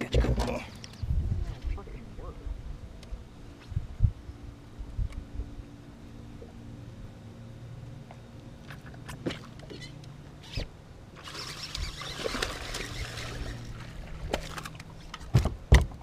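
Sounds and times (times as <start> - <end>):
steady low hum: 0.0 - 16.0
fish splashing at water surface: 11.2 - 14.8.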